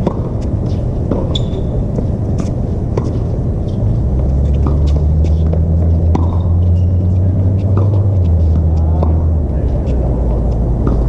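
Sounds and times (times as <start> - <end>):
loud low rumble: 1.8 - 11.0
tennis ball pops: 4.6 - 6.5.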